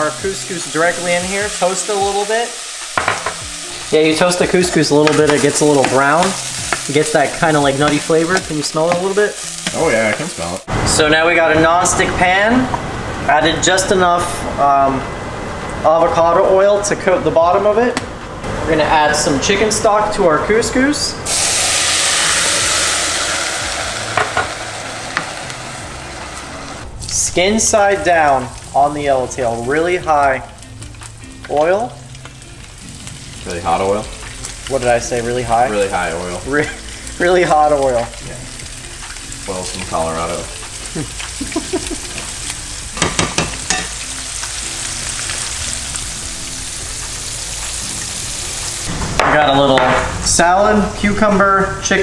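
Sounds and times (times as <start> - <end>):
fish sizzling in a pan: 0.0 - 10.7, 21.3 - 49.0
stock hissing in hot pot: 21.3 - 26.8
spatula tapping pot: 43.0 - 43.9.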